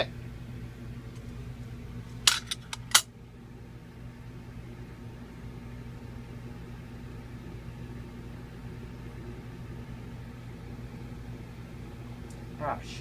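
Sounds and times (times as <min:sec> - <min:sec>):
electrical hum with hiss: 0:00.0 - 0:13.0.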